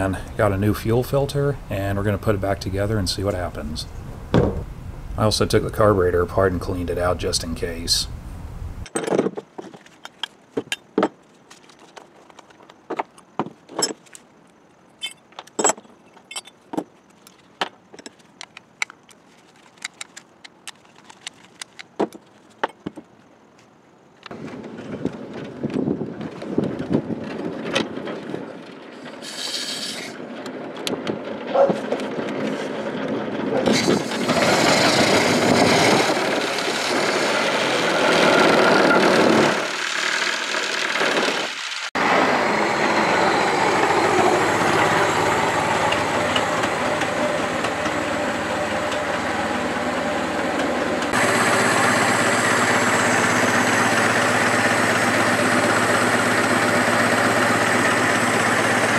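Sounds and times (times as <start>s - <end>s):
car engine running: 33.7s - 58.9s
engine clicks and knocks: 44.0s - 58.9s.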